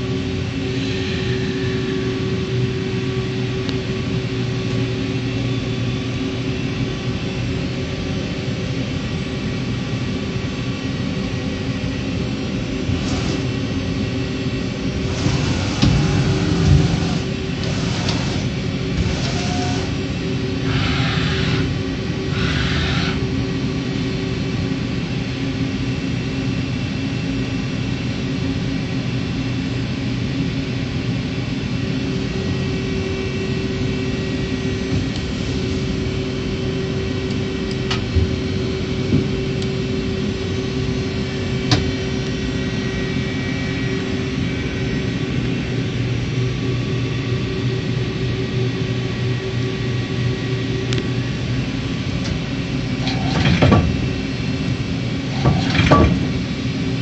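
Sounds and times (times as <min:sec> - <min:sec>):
lathe machine hum: 0:00.0 - 0:24.6.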